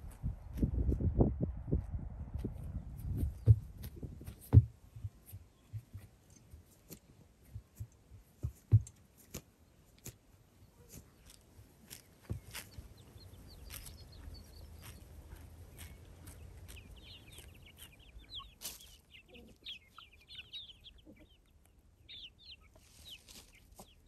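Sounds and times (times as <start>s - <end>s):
faint bird chirps: 12.4s - 24.0s.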